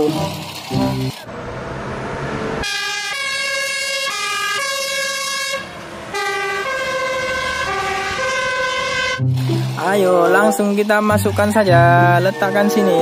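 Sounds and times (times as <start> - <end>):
fire engine two-tone siren: 0.7 - 9.3, 12.2 - 13.0.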